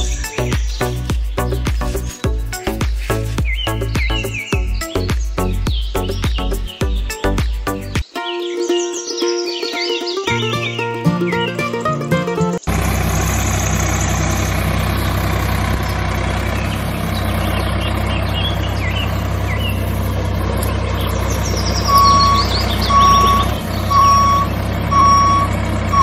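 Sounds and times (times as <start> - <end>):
tractor engine running: 0.0 - 7.6, 10.3 - 26.0
high chirps: 0.0 - 26.0
reversing alarm beeping: 21.6 - 26.0.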